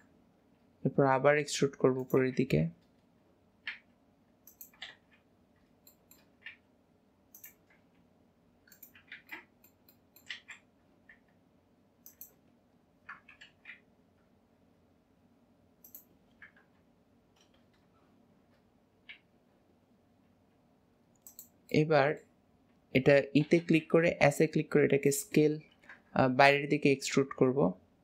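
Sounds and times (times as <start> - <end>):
faint room hiss: 0.0 - 28.0
mouse and keyboard clicks: 3.6 - 5.2, 5.8 - 6.6, 7.3 - 8.0, 8.7 - 11.3, 12.0 - 12.4, 13.0 - 13.9, 15.8 - 17.9, 21.2 - 21.6.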